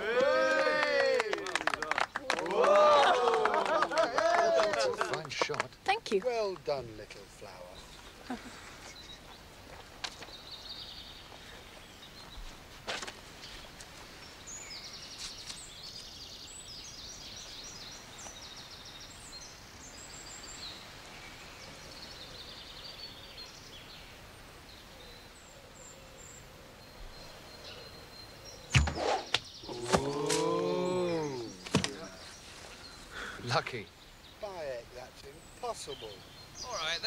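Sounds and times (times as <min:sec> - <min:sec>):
birds chirping: 0:00.0 - 0:37.0
arrow striking with thuds: 0:28.7 - 0:30.6, 0:31.6 - 0:32.0.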